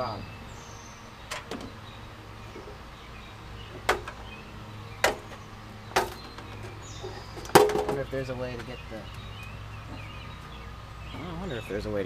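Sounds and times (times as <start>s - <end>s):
metallic ladder knocks: 7.4s - 8.0s.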